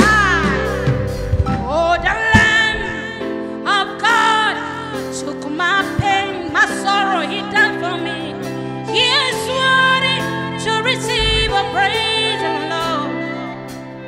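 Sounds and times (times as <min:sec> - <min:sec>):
held keyboard chords: 0:00.0 - 0:04.7, 0:05.6 - 0:14.0
saxophone melody: 0:11.1 - 0:11.6.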